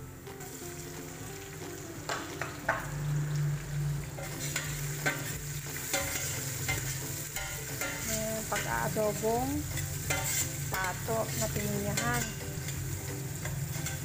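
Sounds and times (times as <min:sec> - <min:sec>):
onion sizzling in oil: 0:00.0 - 0:14.0
utensil scraping and knocking pan: 0:09.8 - 0:12.8.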